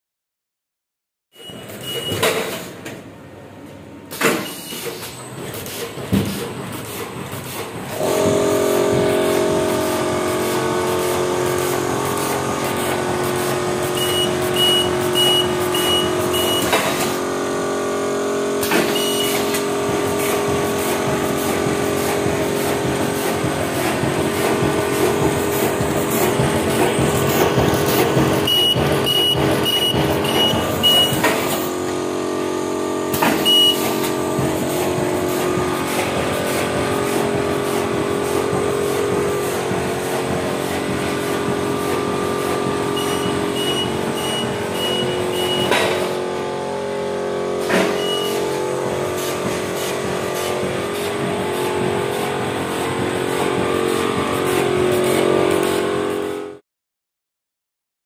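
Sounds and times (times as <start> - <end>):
fast regular machine clacking: 4.2 - 17.6, 18.6 - 32.0, 33.1 - 56.2
machine hum: 5.2 - 56.6
short high electronic beeps: 14.0 - 16.8, 18.9 - 19.4, 28.5 - 31.2, 33.4 - 34.0, 43.0 - 45.8, 48.0 - 48.4.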